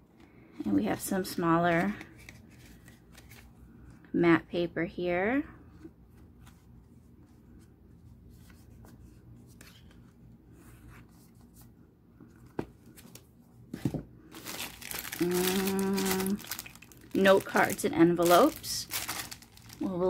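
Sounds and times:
cellophane crinkling: 14.3 - 20.0
person humming: 15.2 - 16.4.

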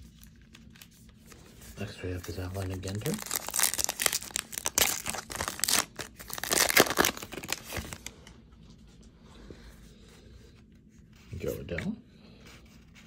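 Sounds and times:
faint rustling of cards: 0.0 - 13.0
plastic wrapper tearing and crinkling: 2.1 - 8.3.

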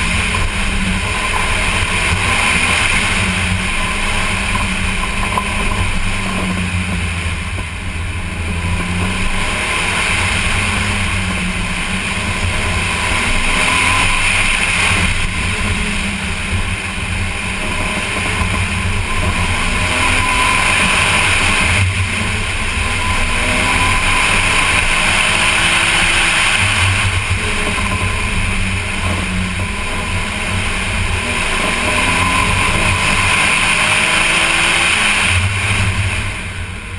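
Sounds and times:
car engine accelerating: 0.0 - 36.9
wind and road noise: 0.0 - 36.9.

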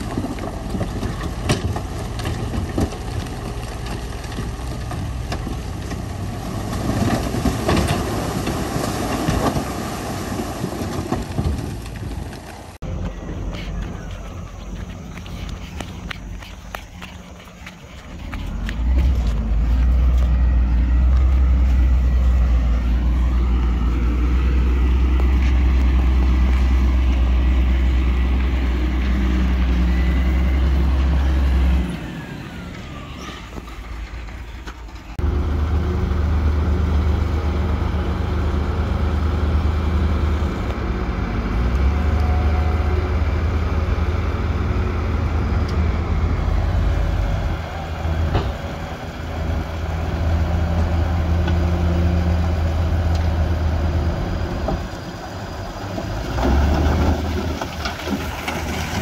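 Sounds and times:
heavy diesel engines running: 10.6 - 59.0.

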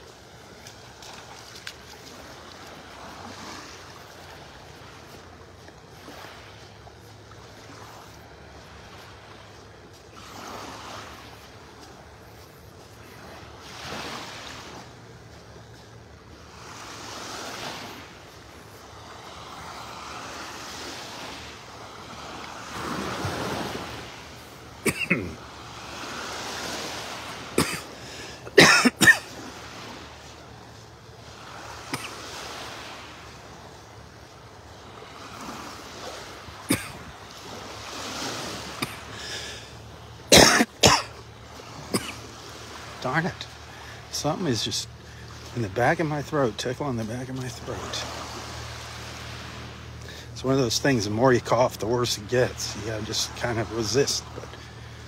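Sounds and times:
small waves washing onto shore: 0.0 - 55.0
man coughing: 24.8 - 25.4, 27.6 - 27.9, 28.5 - 29.4, 31.9 - 32.2, 36.7 - 37.0, 38.8 - 39.1, 40.3 - 41.2, 41.9 - 42.2.

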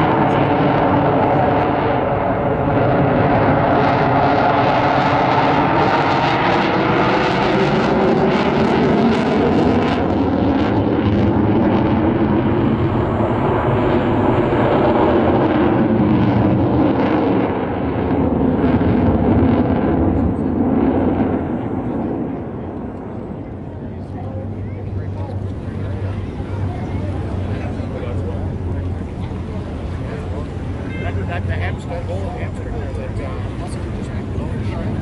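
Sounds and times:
jet engine roar with crackle: 0.0 - 35.0.

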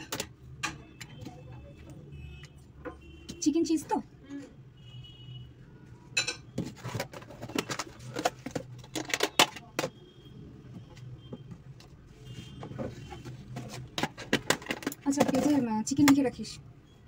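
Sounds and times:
bowls and cup clinking: 6.2 - 9.9.

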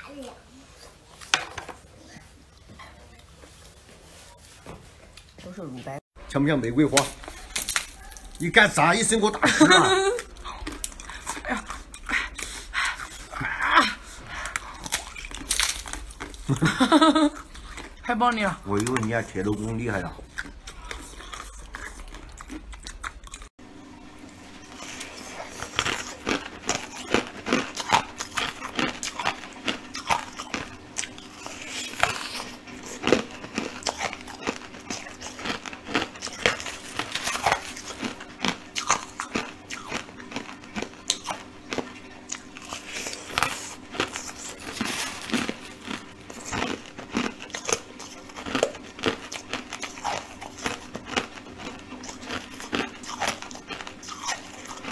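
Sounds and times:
faint steady hum: 6.2 - 54.9
chewing crunchy ice: 6.8 - 23.5, 24.6 - 54.9.

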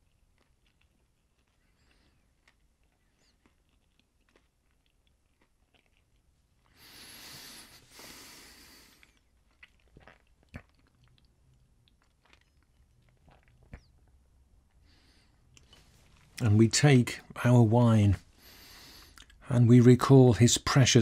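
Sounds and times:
man chewing bread: 0.0 - 16.4, 18.2 - 19.4
wet mouth clicks: 8.8 - 14.1, 19.0 - 19.4.

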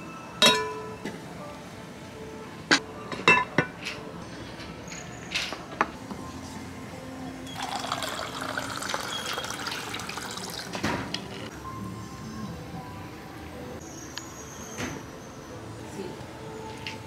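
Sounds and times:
glass lid and metal tongs clinking: 0.4 - 1.0, 3.1 - 4.0
water pouring into paper cup: 7.6 - 10.8.

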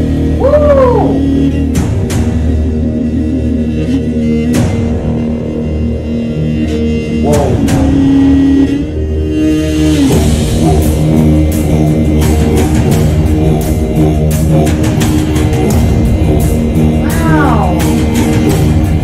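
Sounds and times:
folk metal music: 0.0 - 19.0
heavy drum beat: 7.2 - 8.5, 10.2 - 19.0
bowed string and guitar notes: 7.2 - 8.8.

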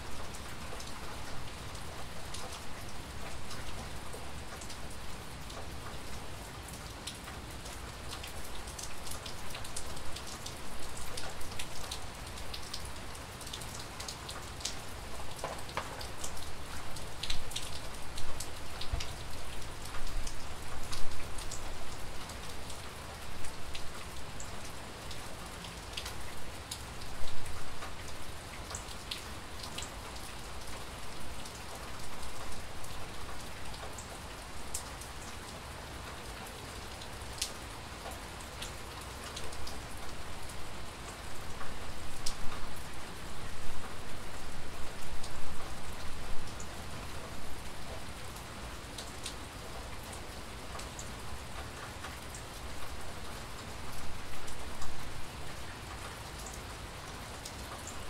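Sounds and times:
steady rain falling: 0.0 - 58.0
raindrops tapping close by: 7.0 - 35.4.

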